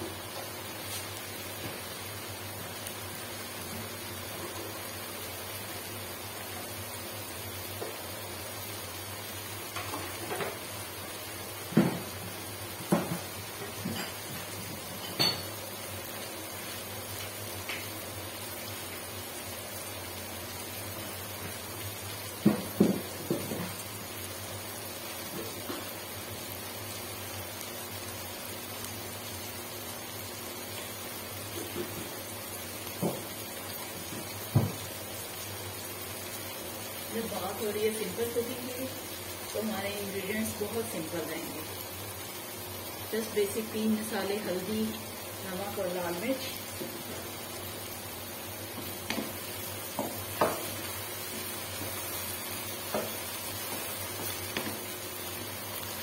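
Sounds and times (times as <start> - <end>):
vegetables hissing in wok: 0.0 - 56.0
knocks against cookware: 22.4 - 23.7.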